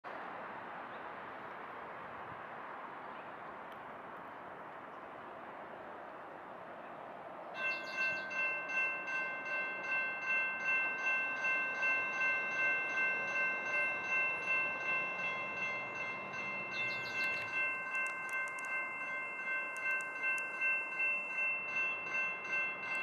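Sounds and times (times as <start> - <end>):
electronic crossing bell ringing: 7.6 - 23.0.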